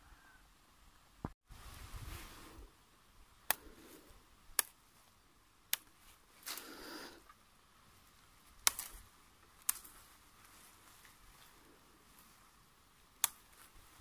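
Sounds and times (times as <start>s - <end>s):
leaves rustling: 1.4s - 14.0s
leaf stems snapping: 3.4s - 3.8s, 4.5s - 4.8s, 5.7s - 6.7s, 8.4s - 11.6s, 13.1s - 14.0s.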